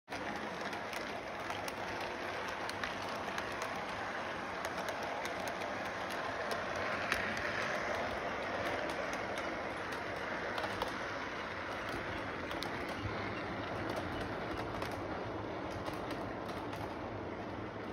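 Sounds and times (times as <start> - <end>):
model train running on track: 0.1 - 17.9
small clicks: 4.6 - 17.1.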